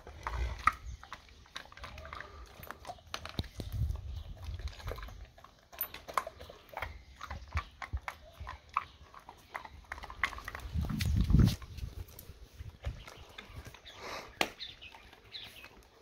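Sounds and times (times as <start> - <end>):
dog chewing a treat: 0.0 - 12.1
dog mouth clicks and smacks: 0.0 - 12.1.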